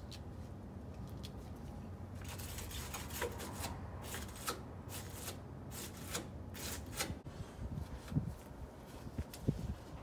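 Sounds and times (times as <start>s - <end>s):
hand tool scraping metal rail: 2.2s - 7.2s.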